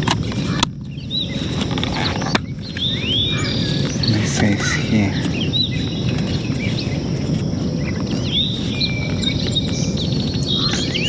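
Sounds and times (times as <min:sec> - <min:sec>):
birds chirping: 0:00.0 - 0:11.0
wind on microphone: 0:00.0 - 0:11.0.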